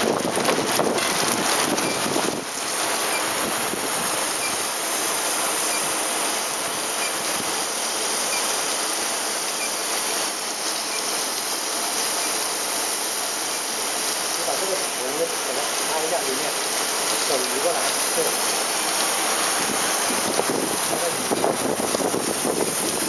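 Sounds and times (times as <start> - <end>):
water spraying hiss: 0.0 - 23.0.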